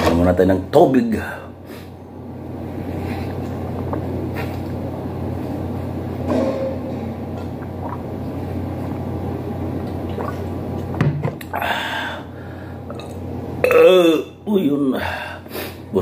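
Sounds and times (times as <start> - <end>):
person gulping water: 3.2 - 4.8, 7.4 - 11.6, 12.9 - 14.2.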